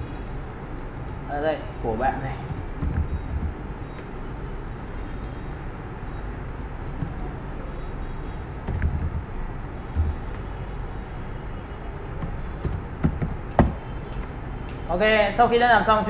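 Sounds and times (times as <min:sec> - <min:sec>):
room noise and microphone hiss: 0:00.0 - 0:16.0
soft low thumps: 0:02.5 - 0:03.8, 0:06.9 - 0:07.4, 0:08.4 - 0:10.4, 0:12.2 - 0:13.9
faint clicks: 0:02.5 - 0:05.4
low hum: 0:02.5 - 0:14.1.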